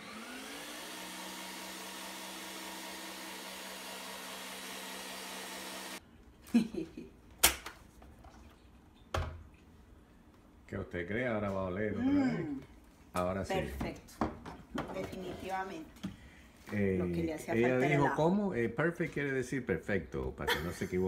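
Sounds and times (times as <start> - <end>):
blender motor running: 0.0 - 6.0.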